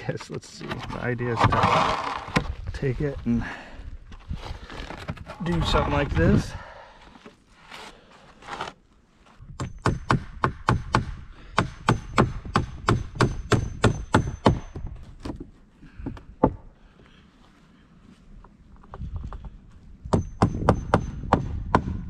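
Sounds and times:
hammer driving nails into wood: 9.6 - 14.9, 20.1 - 22.0.

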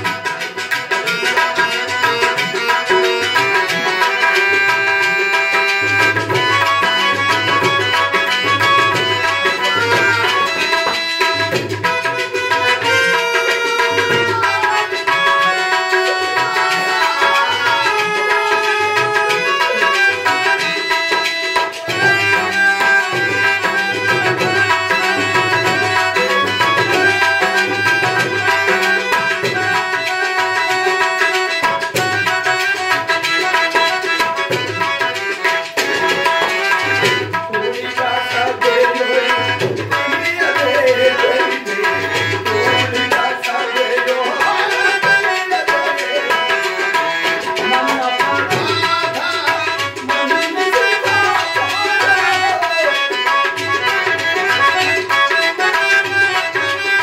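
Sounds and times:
held melodic notes: 0.0 - 57.0
tabla playing a steady rhythm: 0.0 - 57.0.

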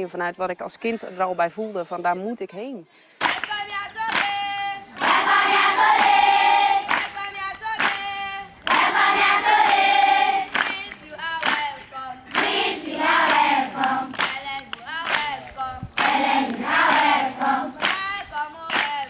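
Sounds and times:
children singing in unison: 3.8 - 19.0.

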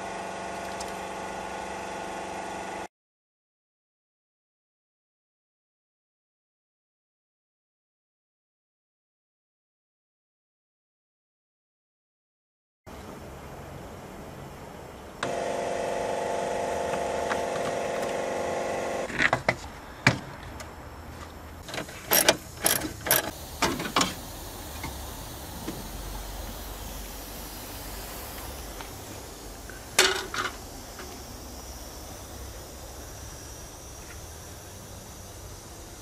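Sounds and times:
steady multi-tone hum: 12.9 - 36.0.

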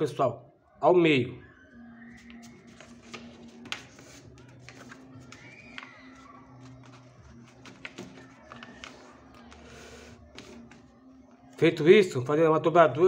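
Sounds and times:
paper folding and crinkling: 2.2 - 10.9.

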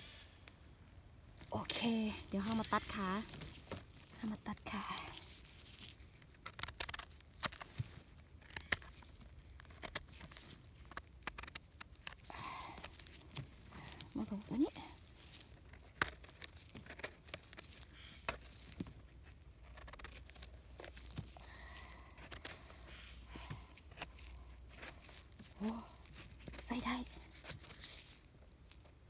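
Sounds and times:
plastic gloves crinkling: 0.5 - 29.0
needles and debris crackling: 1.2 - 29.0
knife scraping mushroom stem: 1.5 - 28.9.

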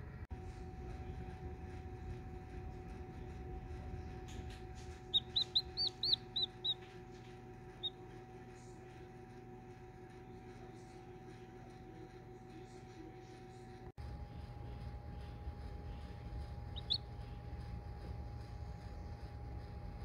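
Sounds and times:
steady low hum: 0.0 - 20.0
chick peeping: 4.8 - 6.9, 7.8 - 8.0, 16.6 - 17.1.

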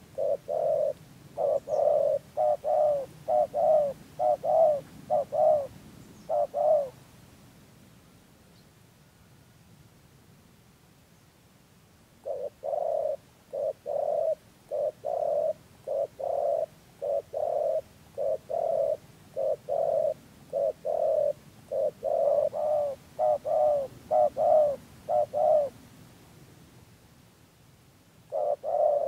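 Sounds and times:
dove cooing: 0.0 - 7.0, 12.2 - 25.8, 28.2 - 29.0.

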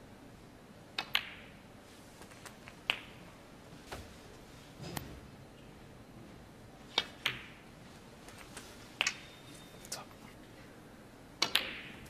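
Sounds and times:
snooker balls clicking: 0.9 - 1.6, 2.2 - 3.4, 6.9 - 9.3, 11.4 - 12.0.

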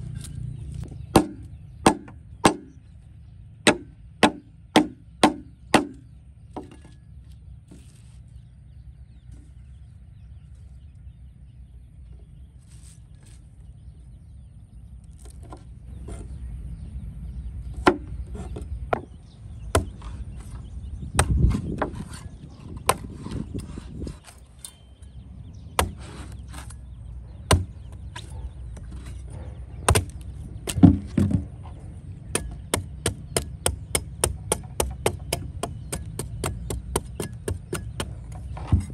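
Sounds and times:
blade chopping: 0.0 - 2.7, 3.6 - 6.0, 25.8 - 26.8, 29.9 - 31.4, 32.3 - 38.9.

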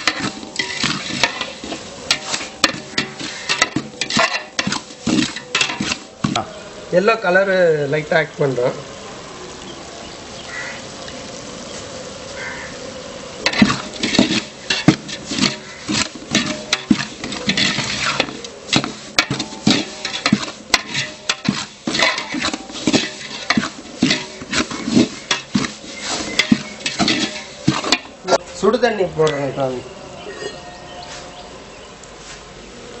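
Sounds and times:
metal ladle scraping a pot: 0.0 - 6.6, 13.4 - 28.4.

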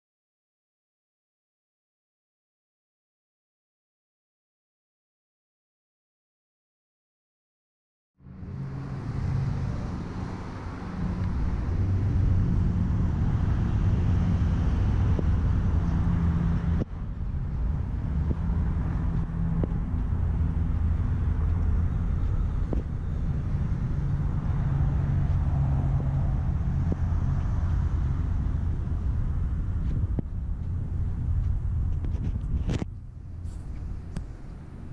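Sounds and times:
car engine idling: 17.0 - 34.9.

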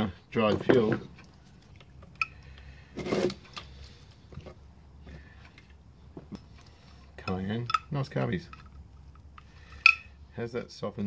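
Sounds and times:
metal part clattering: 7.2 - 10.1.

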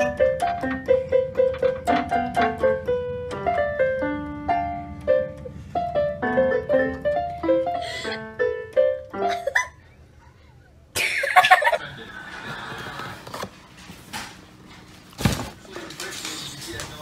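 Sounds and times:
electronic keyboard piano melody: 0.0 - 9.7.

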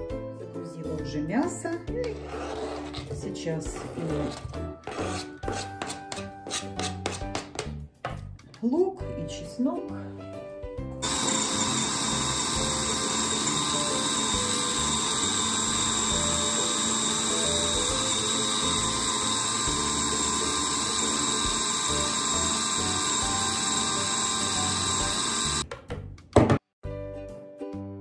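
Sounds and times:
food chopper high whine: 11.0 - 25.6.

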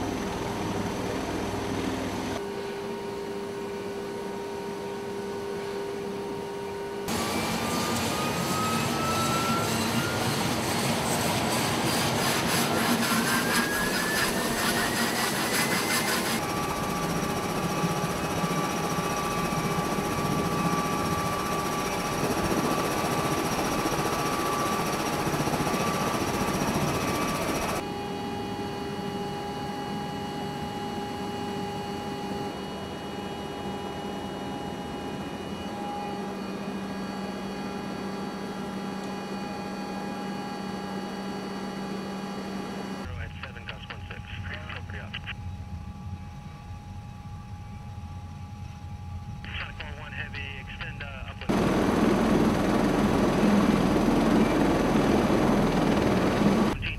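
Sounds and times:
aircraft engines whining: 7.1 - 56.9
aircraft cabin drone: 40.1 - 56.9.

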